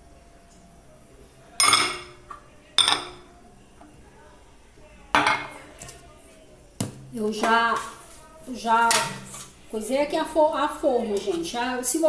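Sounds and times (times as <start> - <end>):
glass kitchenware clinking: 1.6 - 2.2, 2.8 - 3.2, 5.2 - 5.6.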